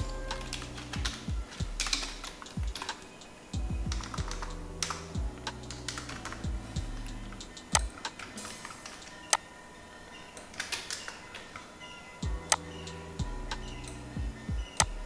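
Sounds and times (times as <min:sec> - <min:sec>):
soft background music: 0:00.0 - 0:15.0
computer keyboard keys clicking: 0:00.3 - 0:03.1, 0:03.9 - 0:06.5.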